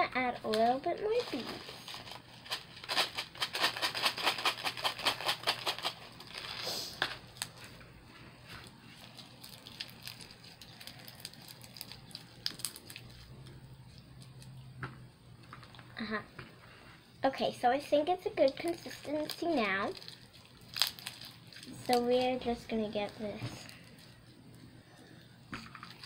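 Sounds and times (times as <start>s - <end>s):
plastic beads sprinkled into bowl: 9.0s - 13.3s, 18.4s - 24.2s.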